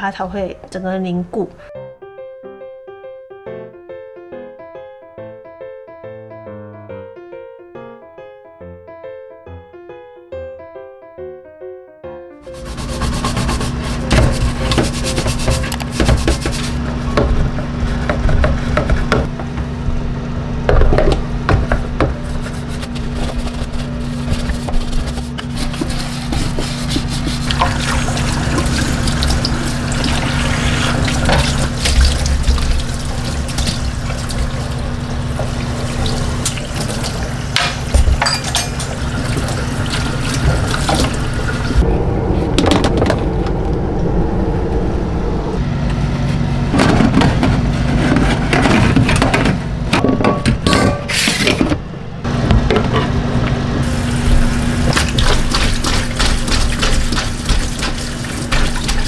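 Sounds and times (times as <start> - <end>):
brush scrubbing: 12.4 - 19.2, 22.0 - 41.8, 53.8 - 59.0
water running into metal sink: 25.5 - 41.8, 53.8 - 59.0.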